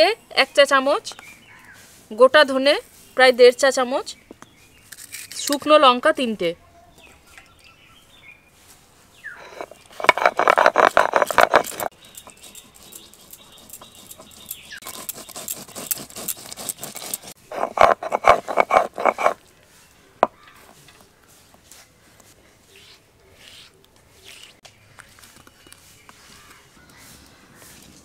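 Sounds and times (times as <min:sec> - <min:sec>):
spices grinding with rapid rattling: 0:09.4 - 0:19.4.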